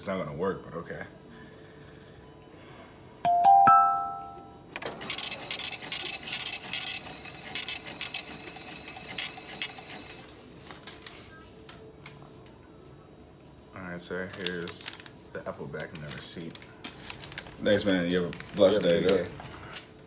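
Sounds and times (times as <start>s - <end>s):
checkout chime: 3.2s - 4.7s
receipt printer chattering: 4.8s - 10.2s.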